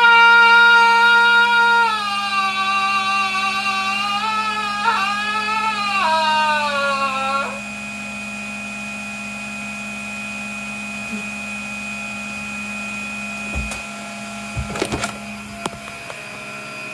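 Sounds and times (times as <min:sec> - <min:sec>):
vacuum cleaner motor: 0:00.0 - 0:16.9
phone handling knocks: 0:13.5 - 0:13.9, 0:14.6 - 0:15.8.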